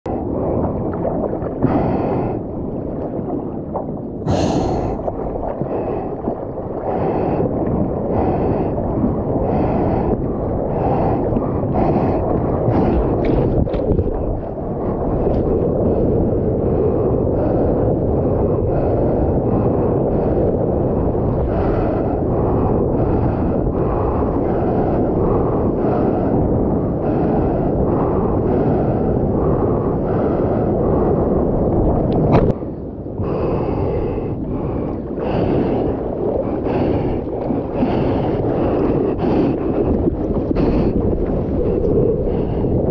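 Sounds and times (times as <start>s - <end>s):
wind buffeting microphone: 0.0s - 42.9s
rushing water: 0.1s - 16.0s
person gasping for breath: 4.2s - 6.2s.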